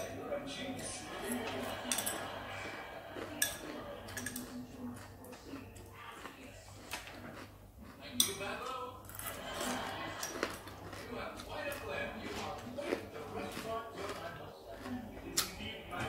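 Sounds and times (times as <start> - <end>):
metal chopsticks clinking on bowl: 1.4 - 2.2, 3.4 - 4.5.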